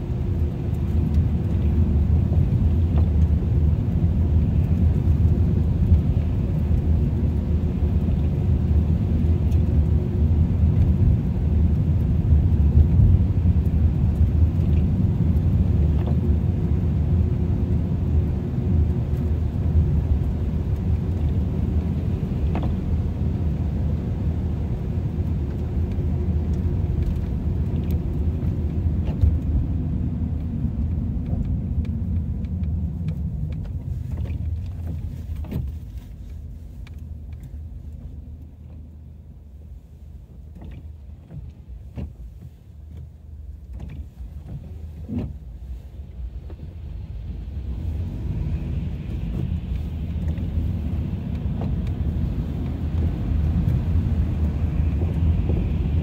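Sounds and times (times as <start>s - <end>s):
car road rumble from cabin: 0.0s - 56.0s
faint small clicks: 31.2s - 38.9s.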